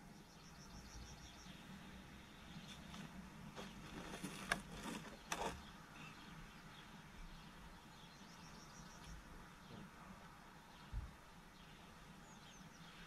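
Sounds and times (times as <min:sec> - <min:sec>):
plastic pots rustling: 0:02.7 - 0:05.6
plastic pots scraping: 0:02.9 - 0:05.7.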